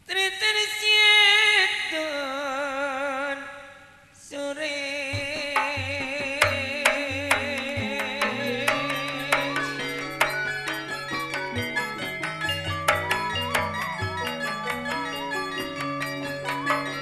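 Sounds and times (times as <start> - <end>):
drum thuds: 5.1 - 17.0
person singing a wavering note: 7.0 - 10.8.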